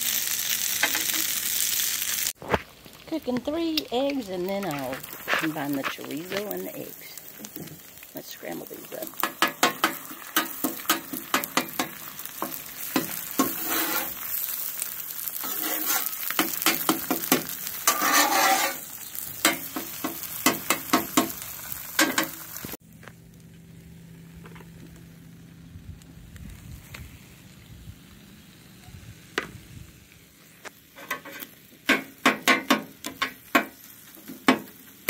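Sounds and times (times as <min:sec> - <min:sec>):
eggs sizzling: 0:00.0 - 0:22.8, 0:27.2 - 0:35.0
metal spatula scraping griddle: 0:09.2 - 0:14.6, 0:15.3 - 0:21.2, 0:30.9 - 0:31.6.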